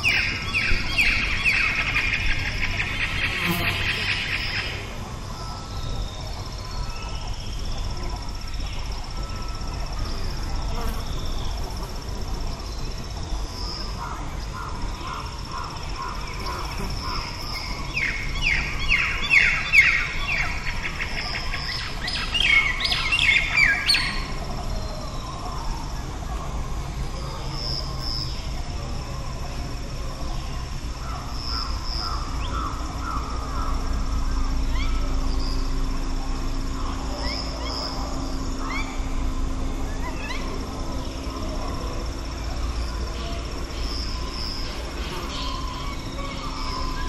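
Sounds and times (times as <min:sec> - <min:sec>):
high insect drone: 0:00.0 - 0:47.0
low rumble of breeze: 0:00.0 - 0:47.0
songbirds calling: 0:00.0 - 0:47.0.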